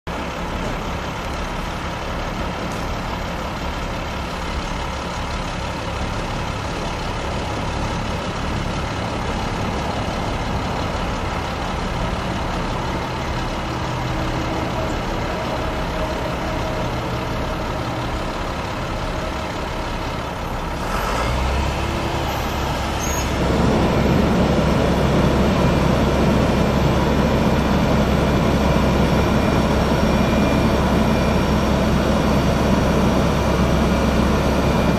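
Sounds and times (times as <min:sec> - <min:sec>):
diesel truck engine running: 0:00.1 - 0:34.9.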